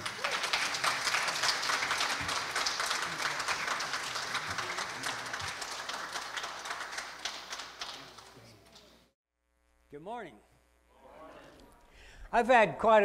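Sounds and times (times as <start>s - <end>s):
congregation applauding: 0.0s - 9.1s.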